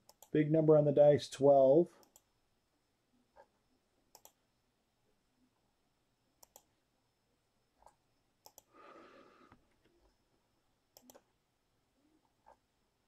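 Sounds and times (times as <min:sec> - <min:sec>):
computer mouse clicks: 0:00.0 - 0:00.4, 0:02.0 - 0:02.3, 0:03.3 - 0:04.4, 0:06.4 - 0:06.7, 0:07.8 - 0:08.7, 0:10.9 - 0:11.3.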